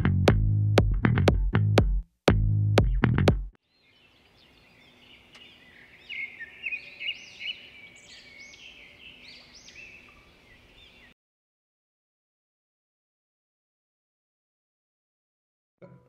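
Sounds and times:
birds chirping and trilling: 3.6 - 11.2.

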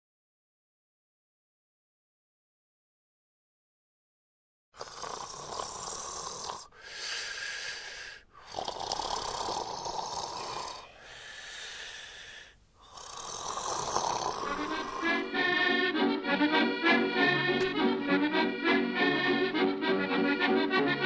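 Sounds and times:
person snoring: 4.8 - 15.6.

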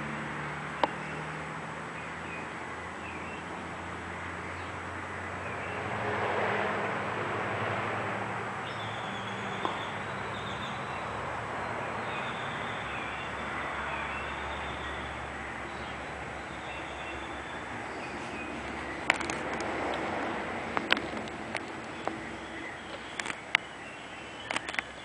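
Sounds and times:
distant traffic hum: 0.0 - 25.0
faint bird chirps: 21.9 - 25.0.

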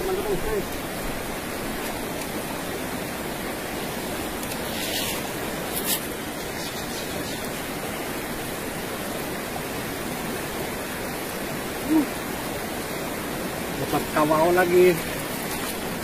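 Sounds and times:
water rushing over stones: 0.0 - 16.0
short high hiss: 4.5 - 7.5.

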